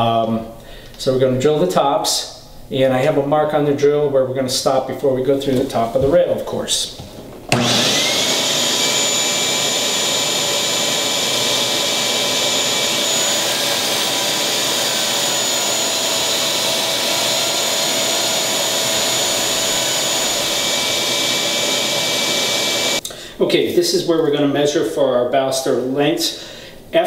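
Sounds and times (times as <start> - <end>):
drill whine: 7.5 - 23.0
vacuum rushing: 7.5 - 23.0.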